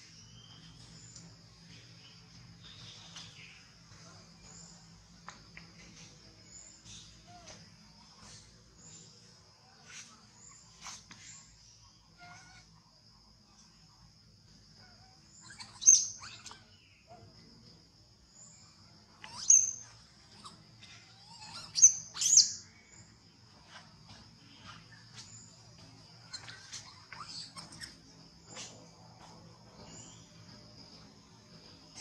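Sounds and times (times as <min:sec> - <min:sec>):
insects droning: 0:00.0 - 0:32.0.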